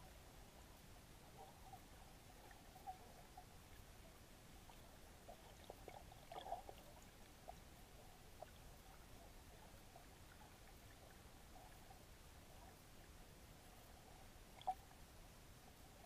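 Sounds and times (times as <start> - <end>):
soft underwater clicks and pops: 14.5 - 15.0.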